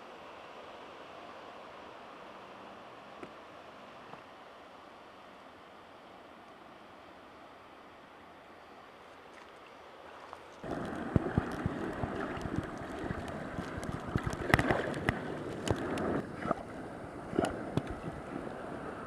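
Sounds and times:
sea water splashing: 9.2s - 19.0s.

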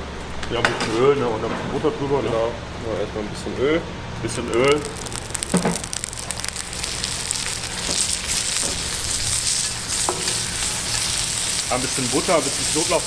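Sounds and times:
oil sizzling on hot plate: 4.5s - 13.0s.

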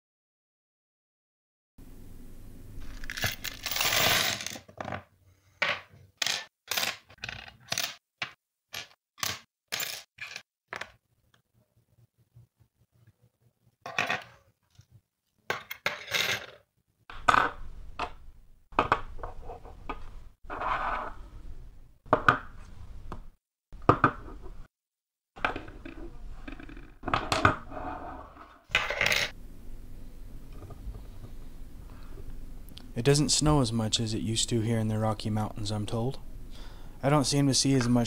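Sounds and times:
small metal parts clinking: 2.8s - 5.0s.

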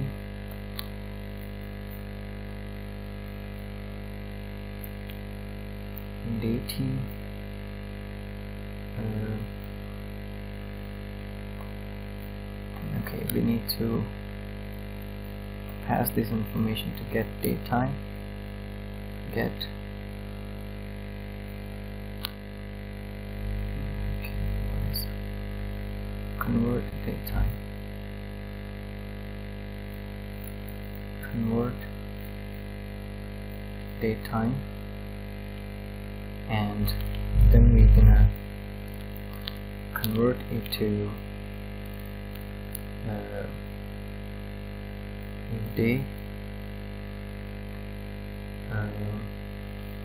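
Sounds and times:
low electrical hum: 0.0s - 50.0s
faint low rumbling: 36.6s - 41.2s.

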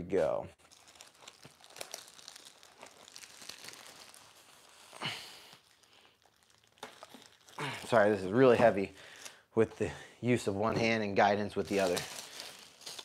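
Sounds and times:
plastic bag crinkling: 0.6s - 9.4s, 11.2s - 13.0s
person exhaling with effort: 4.9s - 5.6s.

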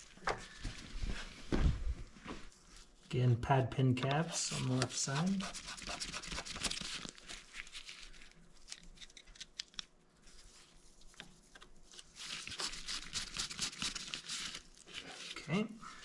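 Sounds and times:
gloved hands rustling: 4.0s - 16.0s.

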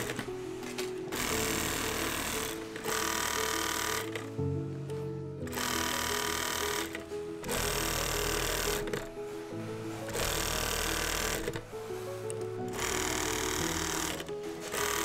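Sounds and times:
industrial sewing machine stitching: 0.0s - 0.3s, 1.1s - 4.3s, 5.5s - 9.1s, 10.0s - 12.1s, 12.7s - 15.0s
background music with sustained notes: 0.0s - 15.0s.

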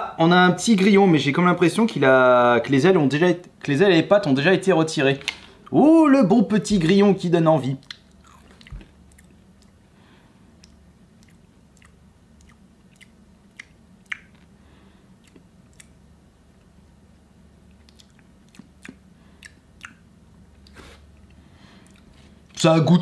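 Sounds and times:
person chewing crunchy insect: 7.8s - 9.8s, 10.5s - 16.0s, 17.6s - 22.5s.

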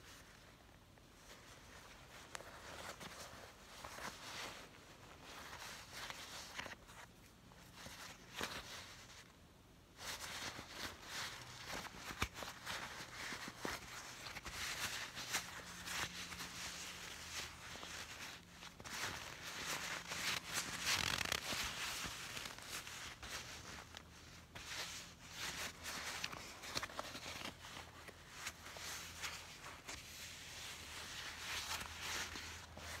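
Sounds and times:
leather jacket rustling: 1.2s - 9.3s, 10.0s - 33.0s.

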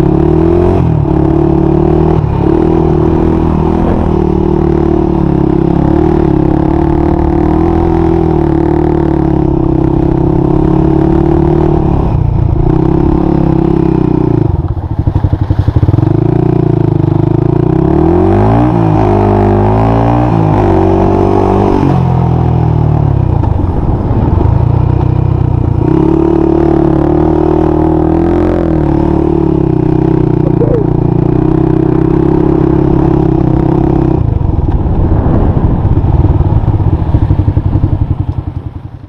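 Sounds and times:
quad bike engine running: 0.0s - 39.0s.

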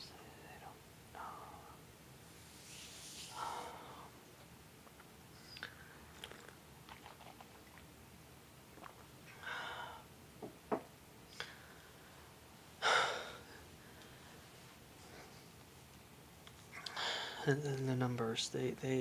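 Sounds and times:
person breathing: 3.2s - 4.2s, 9.4s - 10.1s, 11.3s - 15.5s, 16.9s - 17.5s.

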